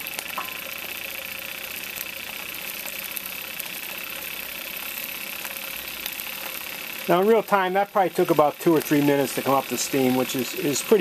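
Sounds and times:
light mechanical ticks: 0:00.0 - 0:11.0
steam engine hissing: 0:00.0 - 0:11.0.

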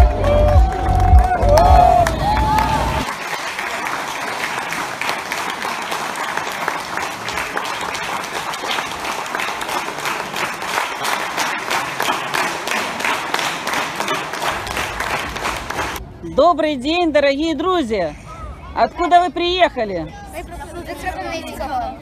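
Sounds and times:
audience applauding: 0:00.0 - 0:16.0.

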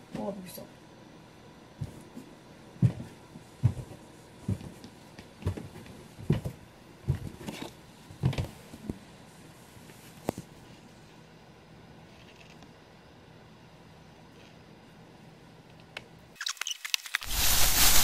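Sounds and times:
footsteps thudding on floor: 0:02.8 - 0:04.8, 0:05.4 - 0:07.4.

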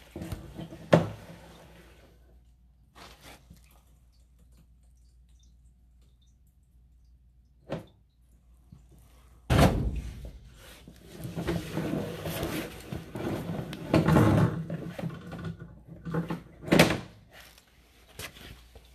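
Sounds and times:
cable rattling and scraping in pipe: 0:10.7 - 0:16.7.

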